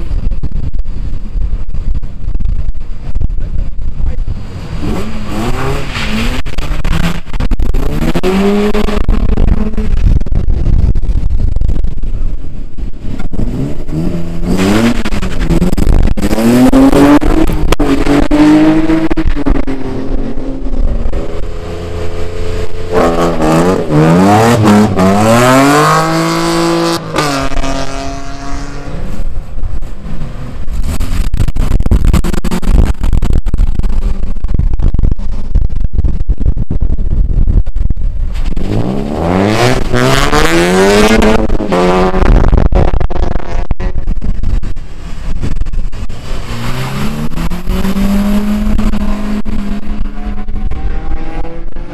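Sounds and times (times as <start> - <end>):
racing engines revving and passing: 4.2 - 10.2, 13.1 - 32.9, 38.4 - 51.9.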